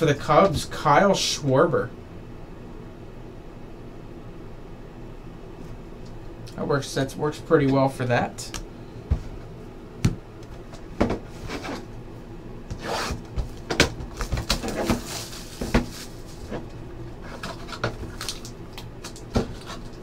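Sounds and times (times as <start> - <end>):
cardboard rustling: 12.8 - 18.5
cardboard boxes knocking and scraping: 13.2 - 16.7.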